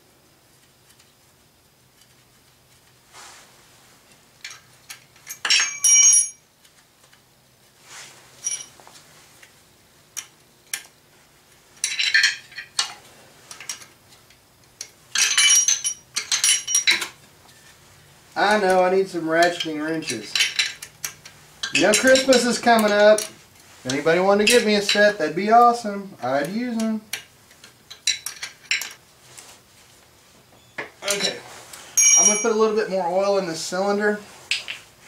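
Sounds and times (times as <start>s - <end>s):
wrench clinking on metal bolts: 4.4s - 6.4s, 8.4s - 8.7s, 11.8s - 13.9s, 14.8s - 17.2s, 19.4s - 25.2s, 26.4s - 29.0s, 32.0s - 33.0s.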